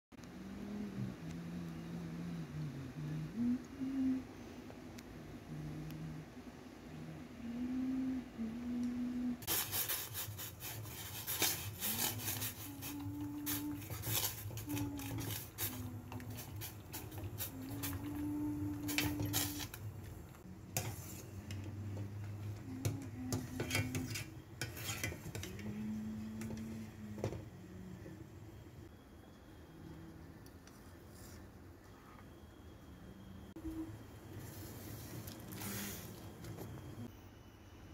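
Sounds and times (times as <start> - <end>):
chopsticks scraping metal pot: 10.6 - 18.2, 22.9 - 25.7.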